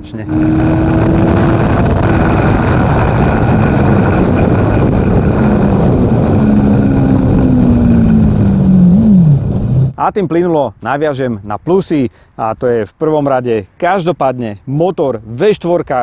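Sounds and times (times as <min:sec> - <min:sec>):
motorcycle engine running: 0:00.0 - 0:10.0
wind rush on microphone: 0:00.0 - 0:10.0.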